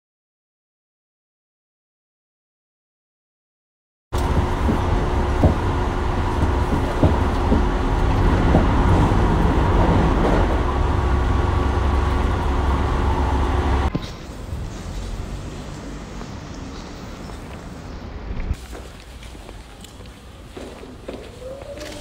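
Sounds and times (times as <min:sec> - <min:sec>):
outdoor street ambience: 0:04.1 - 0:22.0
short knocks: 0:04.2 - 0:09.2
train rumble inside carriage: 0:04.2 - 0:22.0.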